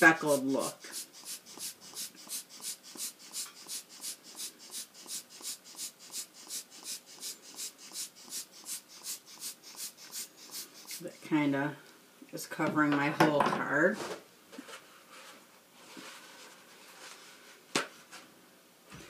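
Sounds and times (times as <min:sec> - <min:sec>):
air spritzer hissing puffs: 0:00.3 - 0:11.2.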